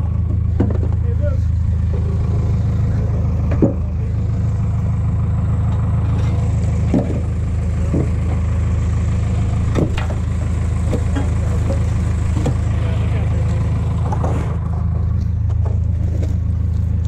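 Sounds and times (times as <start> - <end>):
large engine running: 0.0 - 17.0
knocks and clanks: 0.2 - 1.2, 3.4 - 4.1, 5.7 - 12.9.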